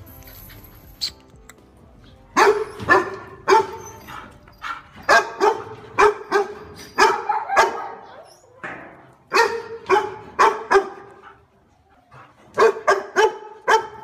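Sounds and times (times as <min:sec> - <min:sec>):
dog barking: 0:02.4 - 0:08.3, 0:09.3 - 0:11.4, 0:12.6 - 0:14.0.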